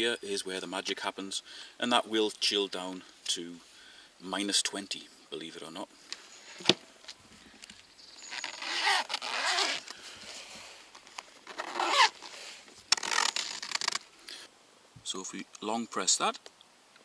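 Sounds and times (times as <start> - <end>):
zip pulled shut: 8.2 - 10.0, 11.4 - 14.1.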